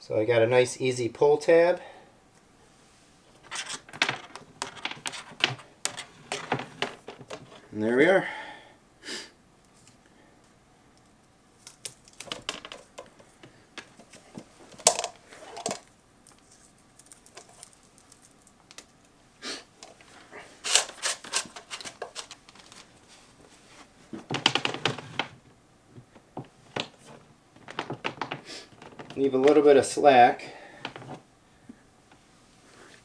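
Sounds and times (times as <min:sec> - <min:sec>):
cable handling clicks and rustles: 0:03.4 - 0:07.7, 0:11.0 - 0:19.2, 0:19.8 - 0:23.4, 0:24.1 - 0:30.0, 0:30.8 - 0:31.2.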